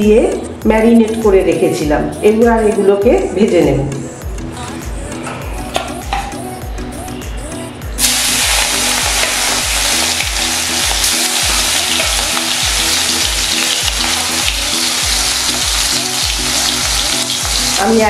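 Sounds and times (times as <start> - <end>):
background music with a beat: 0.0 - 18.0
prawns sizzling in hot oil: 8.0 - 18.0.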